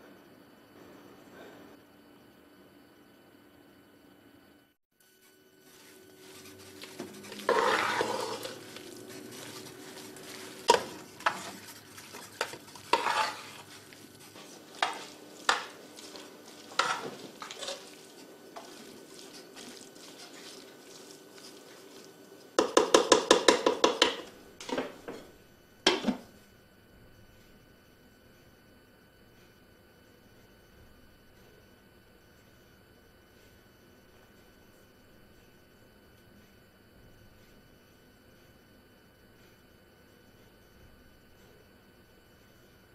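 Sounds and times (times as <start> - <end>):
spoon scraping metal pot: 5.7 - 20.8.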